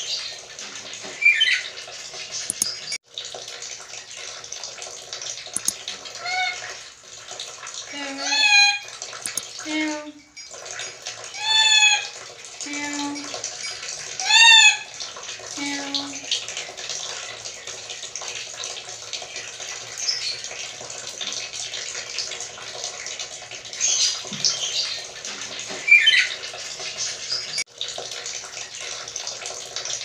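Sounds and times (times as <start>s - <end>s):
parrot squawking: 1.2s - 1.7s, 6.2s - 6.7s, 8.1s - 8.9s, 11.4s - 12.2s, 14.2s - 14.9s, 25.8s - 26.4s.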